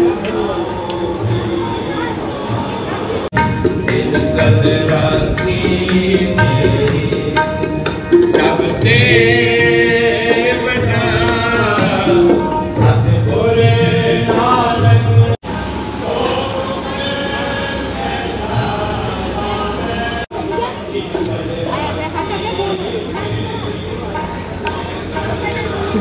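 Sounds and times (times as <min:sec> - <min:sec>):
person singing devotional melody: 0:00.0 - 0:15.4
tabla drumming: 0:03.3 - 0:15.3.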